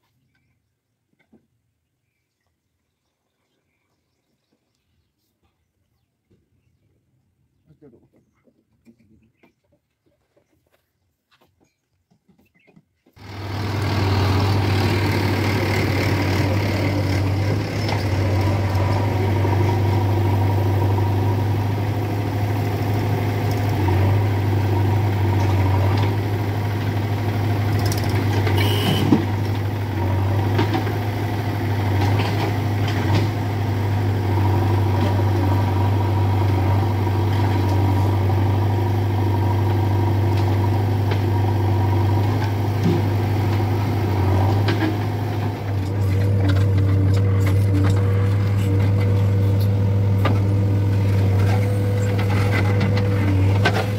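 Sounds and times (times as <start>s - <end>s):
diesel engines idling: 13.2s - 53.9s.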